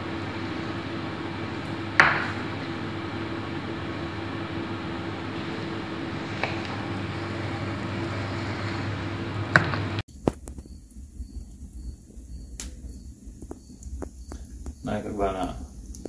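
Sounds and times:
machine hum with low drone: 0:00.0 - 0:16.0
sharp clicks: 0:12.6 - 0:12.8.

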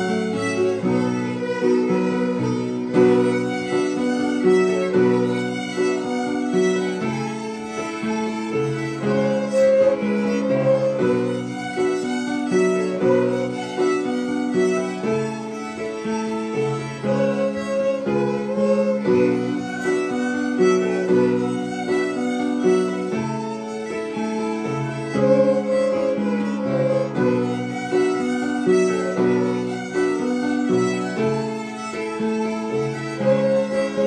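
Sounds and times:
violins playing a tune: 0:00.0 - 0:34.0.

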